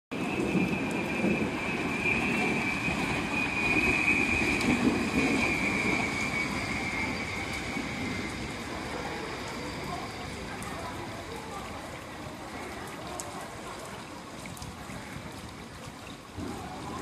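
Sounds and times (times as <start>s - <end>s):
heavy rain: 0.1s - 17.0s
high-pitched whine: 0.2s - 10.7s.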